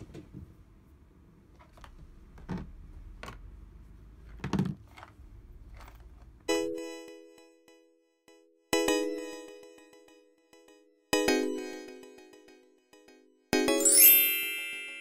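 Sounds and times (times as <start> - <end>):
bright piano-like chime: 13.6 - 15.0.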